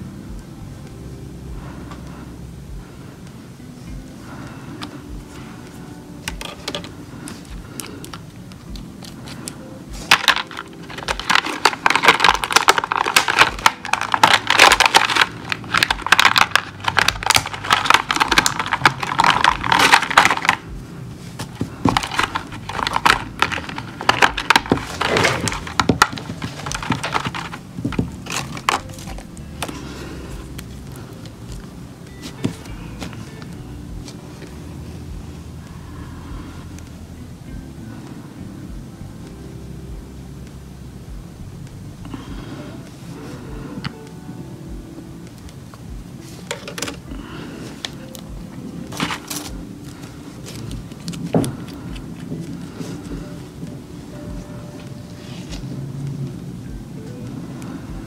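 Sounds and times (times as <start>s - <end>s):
plastic blister tray crackling: 6.2s - 34.6s, 45.3s - 53.8s.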